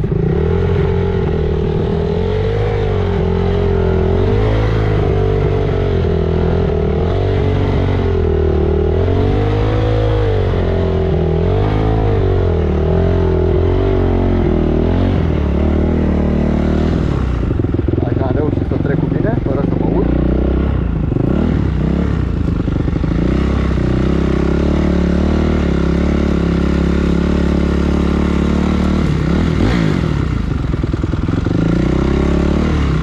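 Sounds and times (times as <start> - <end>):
dirt bike engine revving: 0.0 - 33.0.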